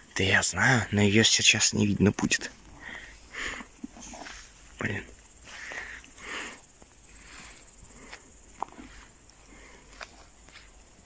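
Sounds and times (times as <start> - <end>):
footsteps through undergrowth: 6.7 - 11.0.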